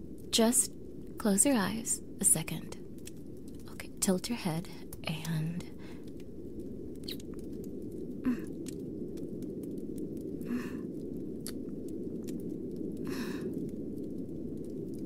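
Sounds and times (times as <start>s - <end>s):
low background rumble: 0.0s - 15.0s
faint clicks: 2.7s - 3.7s, 4.6s - 15.0s
woman making kissing sounds: 7.0s - 7.2s.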